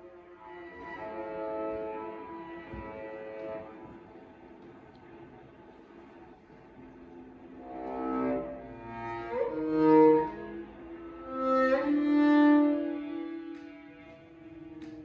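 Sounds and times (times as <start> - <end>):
viola and cello bowed notes: 0.0 - 4.6, 6.7 - 15.0.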